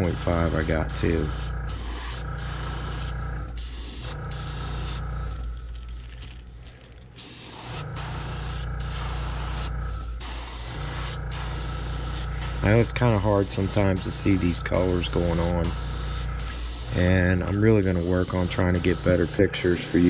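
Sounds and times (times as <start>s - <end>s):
airbrush spraying hiss: 0.0s - 5.0s, 7.2s - 20.0s
low hum: 7.8s - 16.6s.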